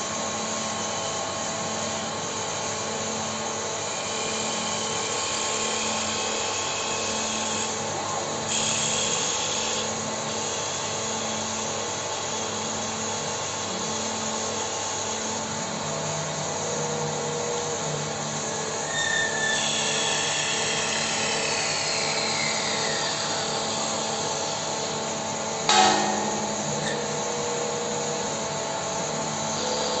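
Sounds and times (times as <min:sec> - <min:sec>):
sharp knock: 0:25.7 - 0:27.1.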